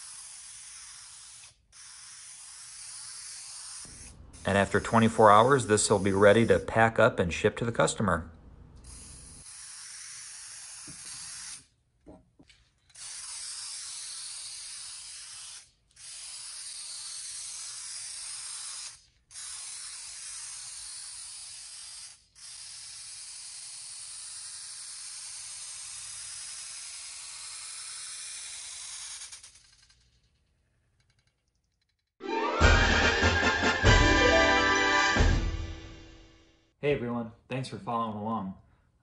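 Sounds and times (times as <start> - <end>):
aerosol can spraying: 0.0 - 6.8, 8.8 - 11.8, 12.8 - 30.0.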